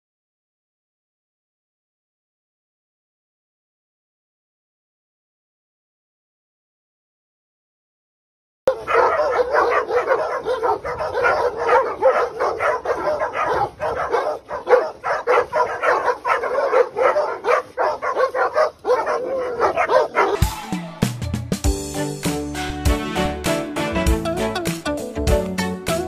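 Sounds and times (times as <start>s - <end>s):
dog barking: 8.7s - 20.5s.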